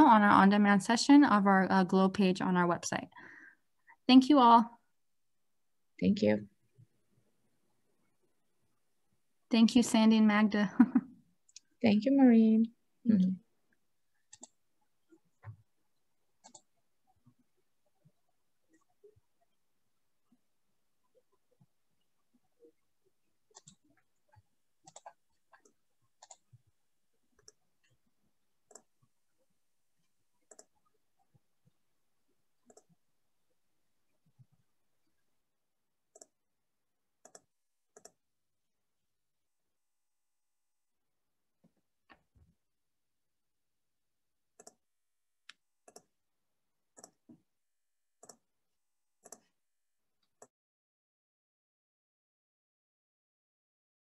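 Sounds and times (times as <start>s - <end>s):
faint irregular clicks: 13.7s - 15.7s, 16.4s - 19.6s, 21.0s - 35.3s, 36.1s - 36.4s, 37.2s - 38.2s, 44.6s - 46.2s, 46.9s - 47.4s, 48.2s - 48.5s, 49.2s - 49.6s
computer mouse clicking: 14.3s - 14.6s, 16.4s - 16.7s, 23.5s - 24.0s, 24.8s - 26.5s, 27.4s - 27.9s, 28.7s - 28.9s, 30.0s - 31.0s, 32.6s - 33.0s, 36.1s - 36.4s, 37.2s - 38.2s, 44.6s - 44.8s, 45.5s - 46.1s, 47.0s - 47.4s, 48.2s - 48.5s, 49.2s - 49.5s.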